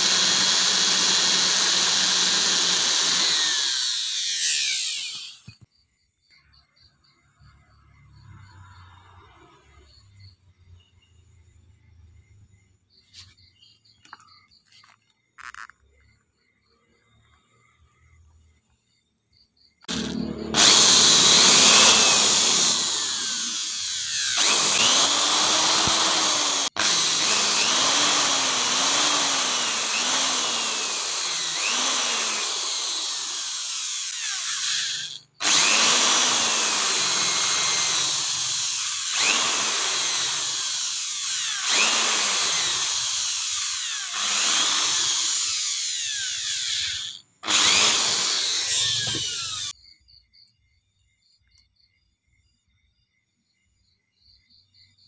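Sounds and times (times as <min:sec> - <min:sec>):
electric drill boring into wood: 0:00.0 - 0:05.6, 0:19.9 - 0:49.8.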